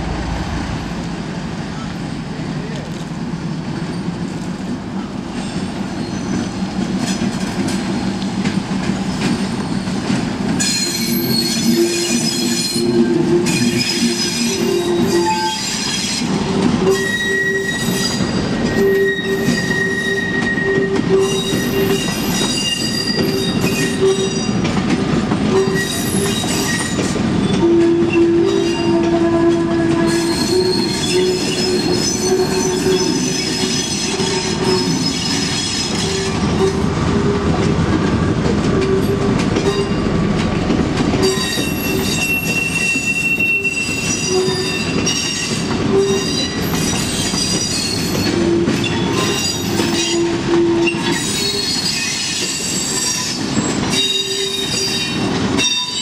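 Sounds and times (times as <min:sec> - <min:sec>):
train cars rolling rumble: 0:00.0 - 0:56.0
train wheels squealing on rails: 0:01.7 - 0:37.7, 0:38.6 - 0:40.2, 0:41.1 - 0:56.0.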